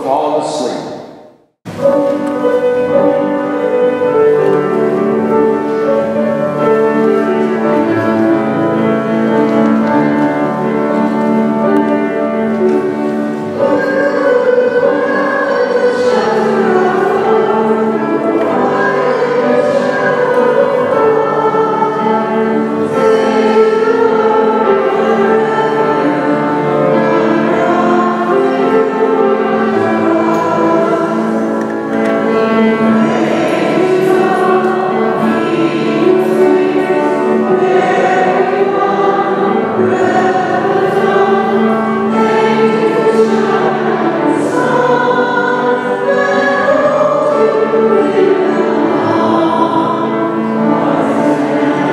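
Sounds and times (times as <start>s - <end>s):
choir singing sacred music: 0.0s - 51.9s.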